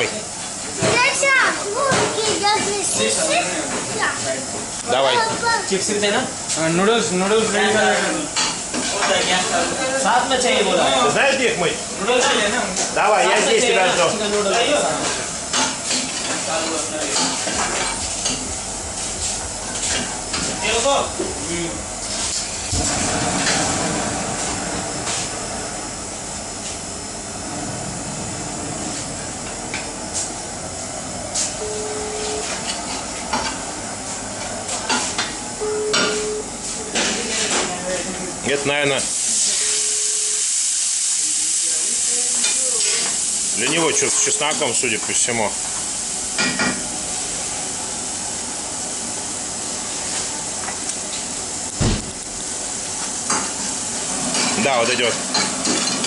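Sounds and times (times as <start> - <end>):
kitchen roar: 0.0 - 56.0
sauce sizzling in a frying pan: 39.1 - 51.6.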